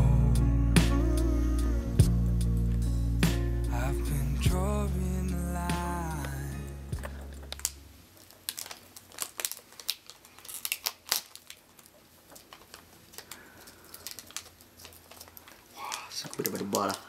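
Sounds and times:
foil wrapper crinkling: 0:05.1 - 0:17.0.

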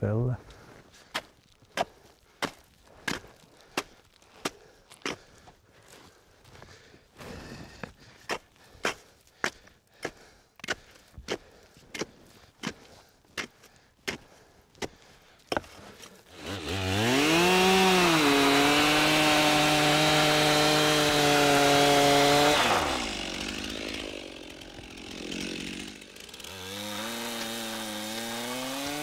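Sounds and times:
chainsaw engine revving: 0:16.3 - 0:29.0.

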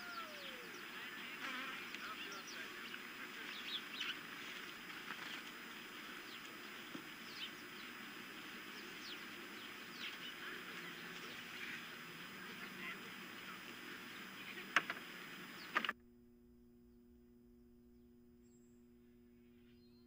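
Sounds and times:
birds chirping: 0:00.0 - 0:16.0
steady hiss: 0:00.0 - 0:16.0
sharp clicks: 0:14.7 - 0:16.0.

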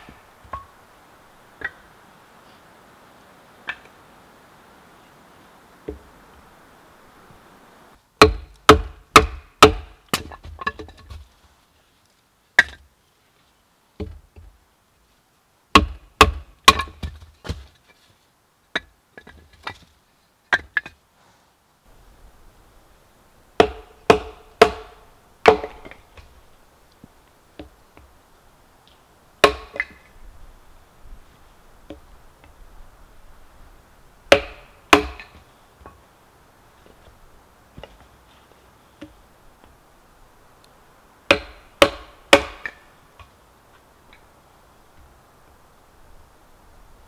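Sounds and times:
firewood being chopped: 0:08.2 - 0:11.2, 0:12.6 - 0:12.9, 0:15.7 - 0:17.8, 0:23.6 - 0:26.3, 0:29.4 - 0:30.1, 0:34.3 - 0:36.0, 0:41.3 - 0:43.3.

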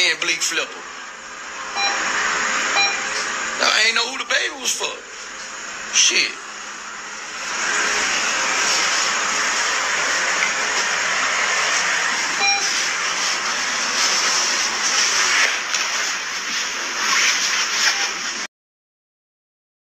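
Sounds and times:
brief faint tone: 0:12.4 - 0:12.7.

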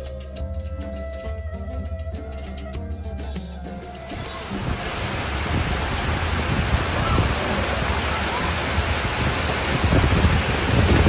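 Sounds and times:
floodwater rushing: 0:04.0 - 0:11.0.

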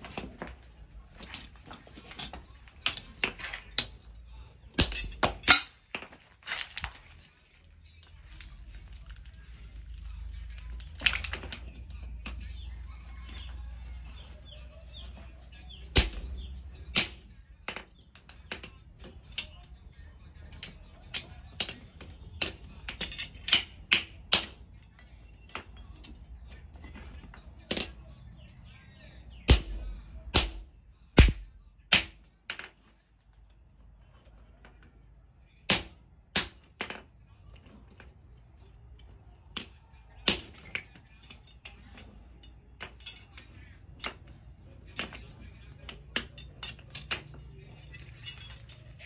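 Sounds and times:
hammer striking steel on anvil: 0:29.5 - 0:32.2.

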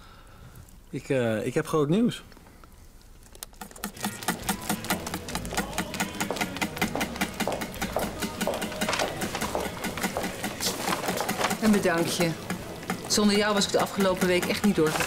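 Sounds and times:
faint background murmur: 0:03.3 - 0:15.0
footsteps on hard floor: 0:04.9 - 0:11.6.

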